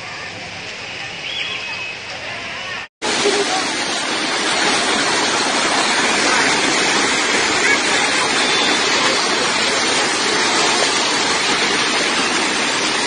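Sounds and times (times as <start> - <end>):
heavy rain and hail: 3.0 - 13.0.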